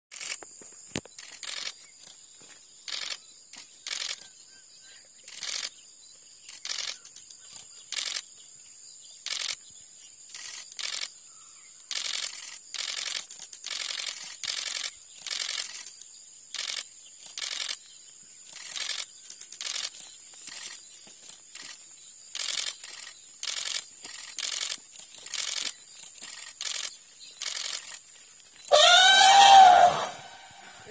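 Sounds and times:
camera shutter clicking: 0.2 - 0.4, 9.3 - 9.6, 10.3 - 11.1, 11.9 - 15.9, 22.4 - 28.0
elephant trumpeting: 28.7 - 30.8.

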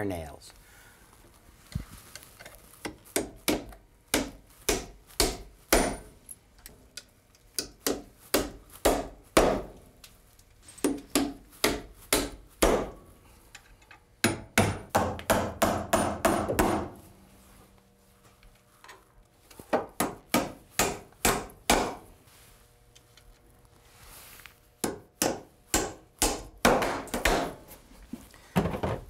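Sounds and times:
hammer striking nails: 2.8 - 6.1, 7.6 - 9.8, 10.8 - 13.0, 14.2 - 17.0, 19.7 - 22.1, 24.8 - 27.6.

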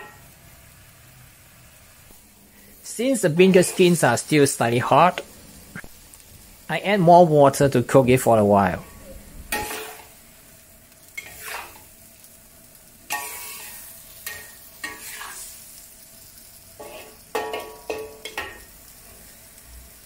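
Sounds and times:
low sizzle: 0.0 - 20.0
metal spatula scraping a wok: 3.5 - 4.1, 8.8 - 10.2, 11.1 - 11.9, 13.1 - 15.6, 16.8 - 19.3.

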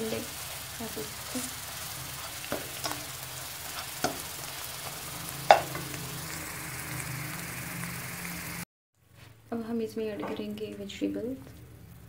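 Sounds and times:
eggs sizzling in oil: 0.0 - 8.7
spatula stirring and scraping: 0.1 - 6.0
spatula knocking against pan: 5.5 - 5.8.

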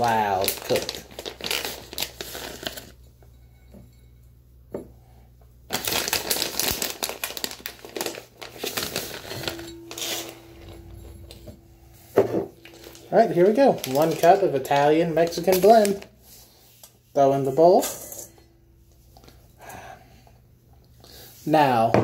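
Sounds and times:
plastic bag crinkling: 0.0 - 2.9, 5.7 - 10.4, 12.6 - 16.2.

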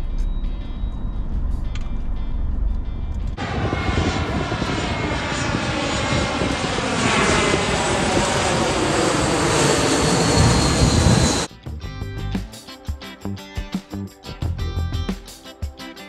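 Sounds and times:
jet engine whine falling: 0.0 - 11.5
jet engines roaring: 0.9 - 11.5.

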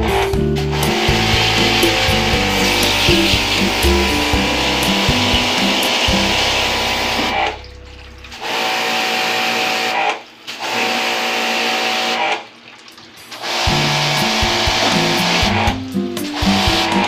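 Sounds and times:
background music: 0.0 - 8.5, 13.6 - 17.0
pressure washer spray hissing: 0.6 - 7.6, 13.4 - 17.0.

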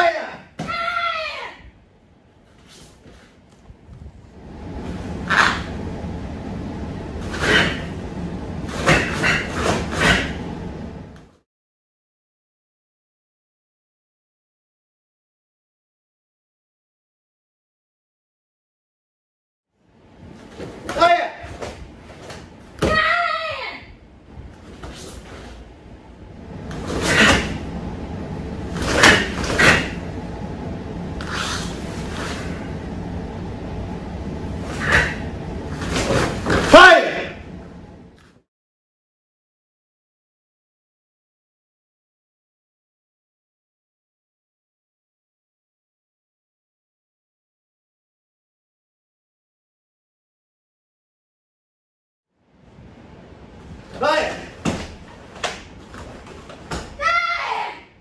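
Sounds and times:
steady low hum: 0.1 - 11.4, 19.8 - 38.4, 52.4 - 58.0
uniform swishing and snapping: 2.5 - 4.0, 8.7 - 10.4, 24.6 - 25.7, 26.6 - 27.6, 28.7 - 30.0, 31.2 - 32.7, 35.8 - 36.7
karate strikes swishing: 5.3 - 5.7, 7.2 - 8.0, 8.7 - 10.4, 26.7 - 27.6, 28.7 - 30.0, 35.8 - 37.2.

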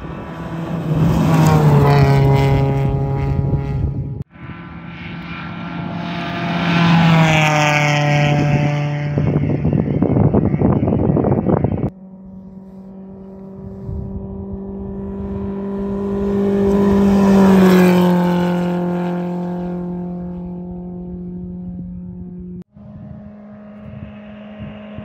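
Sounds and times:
buggy engine at high revs: 0.0 - 25.0.

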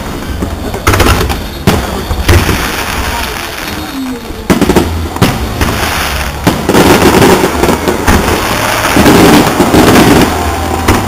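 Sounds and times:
fireworks bangs: 0.0 - 11.0
fireworks crackling: 0.0 - 11.0.

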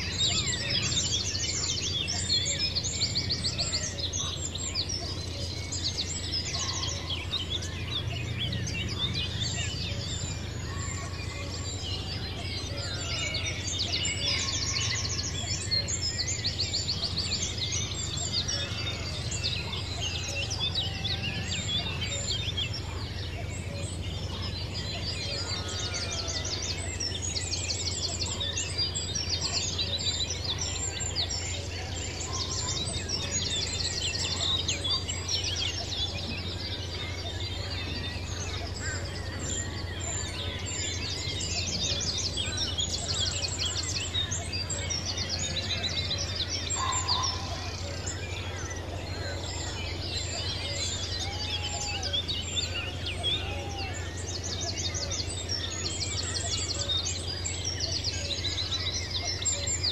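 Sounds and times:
birds chirping and trilling: 0.0 - 59.9.

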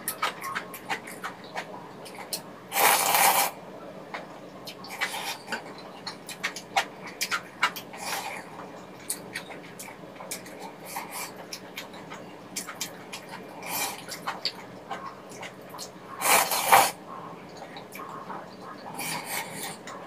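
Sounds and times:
slurping noodles: 2.7 - 3.5, 16.2 - 17.0.

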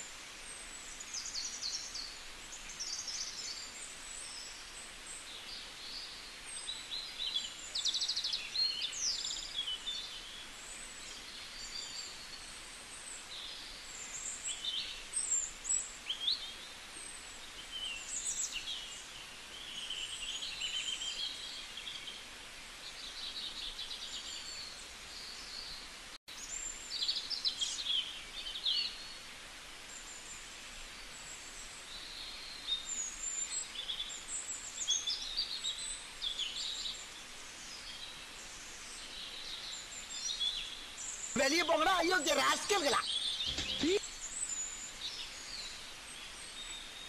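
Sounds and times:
faint outdoor hiss: 0.0 - 47.0
birds chirping: 41.1 - 44.1.

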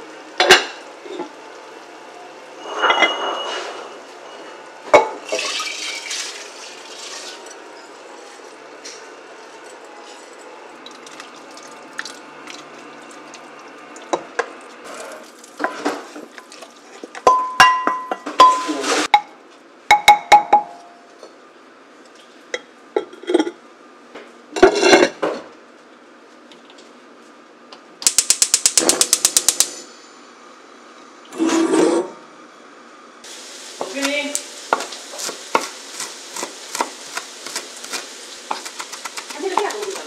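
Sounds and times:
steady hiss: 33.2 - 40.0.

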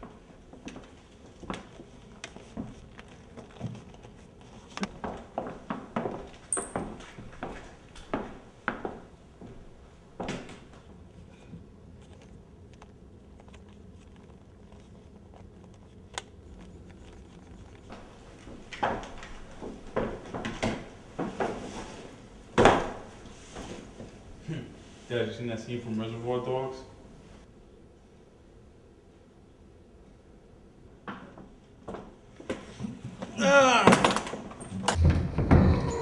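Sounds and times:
knocks and thumps: 34.9 - 36.0.

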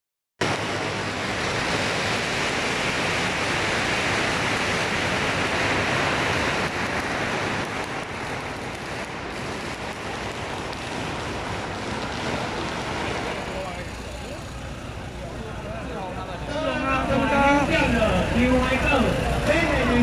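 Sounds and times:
firecrackers crackling: 0.4 - 20.0.

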